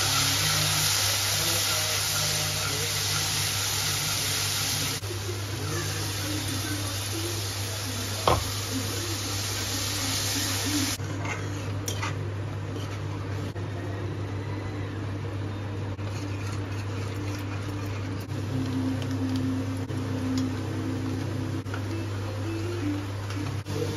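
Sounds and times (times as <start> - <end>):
metal spatula scraping: 0.0 - 4.4, 11.0 - 13.0, 16.0 - 18.3
gravy sizzling in a pan: 0.0 - 11.0.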